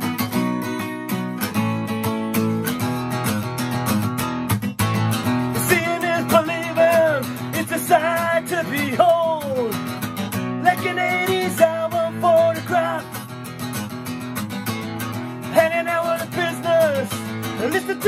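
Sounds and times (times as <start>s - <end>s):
acoustic guitar strumming: 0.0s - 18.0s
man singing: 5.4s - 13.4s, 15.4s - 18.0s.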